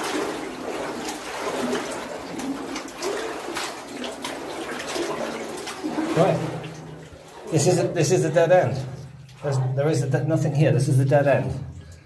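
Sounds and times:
sharp splashes: 0.0s - 9.7s
water sloshing around wading legs: 0.0s - 10.3s.

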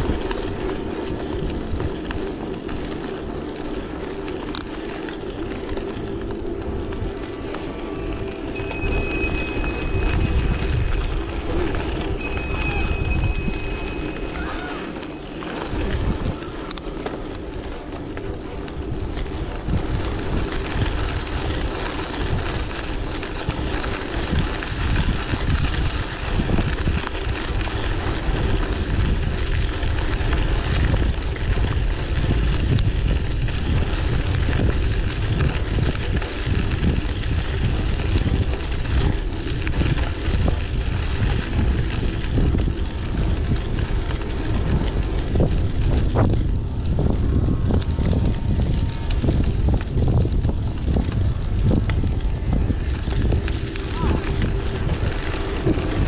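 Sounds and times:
bicycle rolling noise: 0.0s - 56.0s
wind buffeting microphone: 0.0s - 56.0s.

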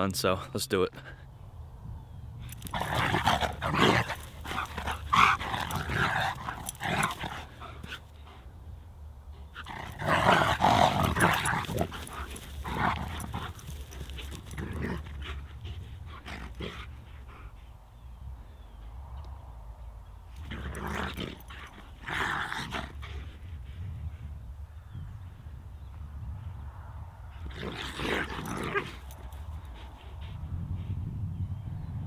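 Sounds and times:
dogs play-fighting vocalizing: 2.5s - 8.5s, 9.4s - 18.2s, 20.4s - 23.7s, 27.3s - 30.4s.

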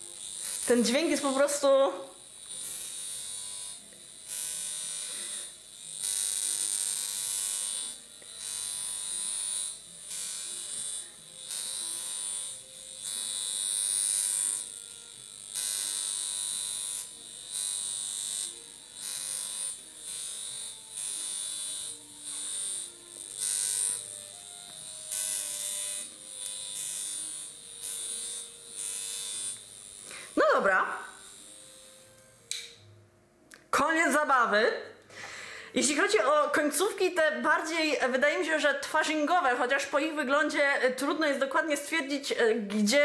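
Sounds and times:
high-pitched electric buzz: 0.0s - 32.8s.

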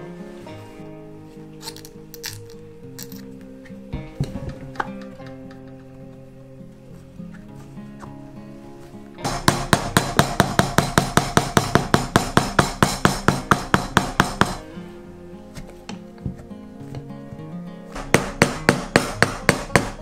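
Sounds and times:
background music: 0.0s - 20.0s
hammer strikes on metal: 9.2s - 14.7s, 17.9s - 20.0s.

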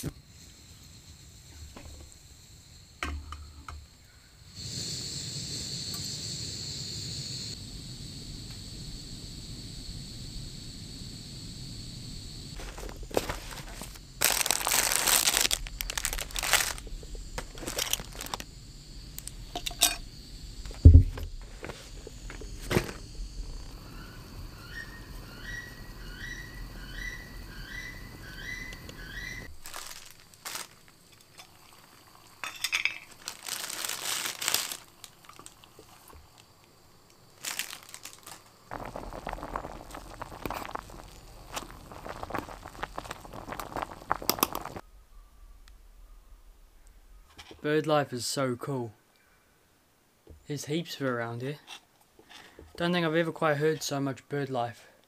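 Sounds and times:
foil food bag crinkling: 12.6s - 18.4s, 29.5s - 31.0s, 32.7s - 36.4s, 37.2s - 44.8s.

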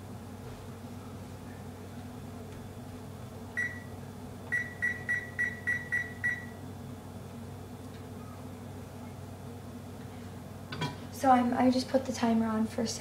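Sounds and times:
electronic keypad beeps: 4.5s - 6.5s.

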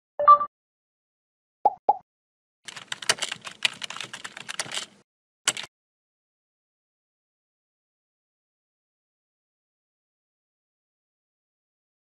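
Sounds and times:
two-tone blip: 0.2s - 0.5s
keyboard typing: 2.7s - 5.7s.

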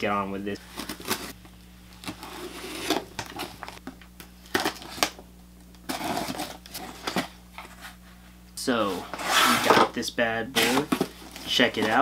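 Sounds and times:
cardboard flaps scraping and crinkling: 0.7s - 1.4s, 2.0s - 3.8s, 5.9s - 9.9s, 10.6s - 12.0s.

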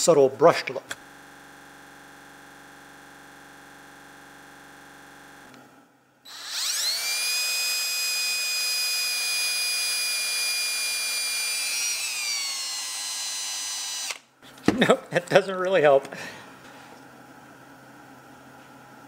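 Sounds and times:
drill whining against metal: 6.3s - 14.3s.

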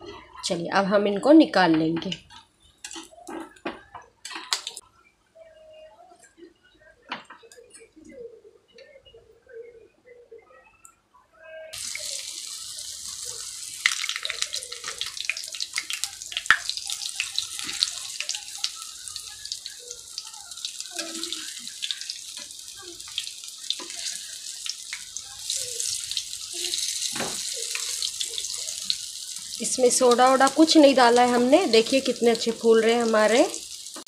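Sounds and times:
fritters sizzling in hot oil: 11.8s - 34.0s.

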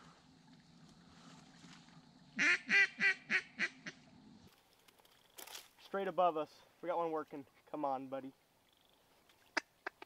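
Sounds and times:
duck quacks: 2.4s - 4.0s.

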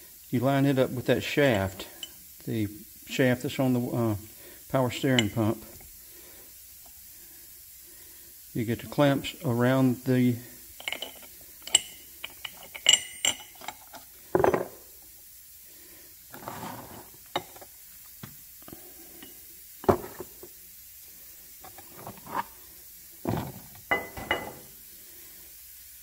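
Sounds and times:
metal parts clicking and knocking: 10.8s - 14.7s.

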